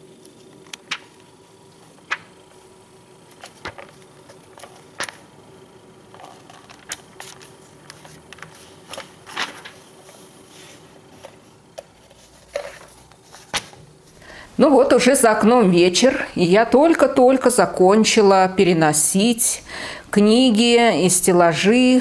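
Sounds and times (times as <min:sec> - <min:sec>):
faint steady hum: 0:00.0 - 0:22.0
catalogue pages rustling: 0:00.1 - 0:05.3, 0:06.0 - 0:14.2.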